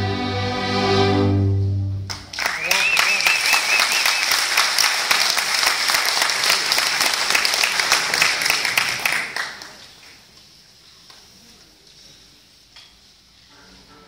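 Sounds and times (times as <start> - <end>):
audience applauding: 2.1 - 10.3.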